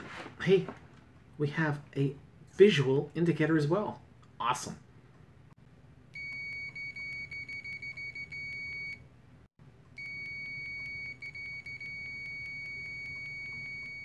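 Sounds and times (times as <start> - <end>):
high-pitched multimeter beep: 10.0 - 14.0.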